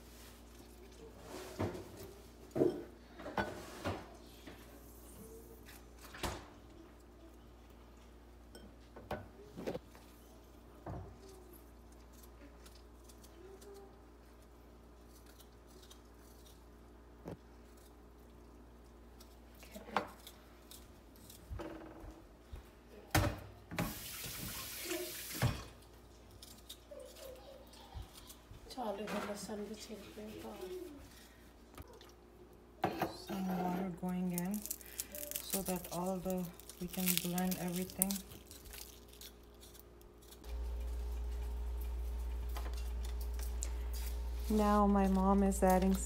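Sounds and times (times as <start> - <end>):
tap water running: 23.7 - 25.7
faint steady hum: 30.5 - 46.0.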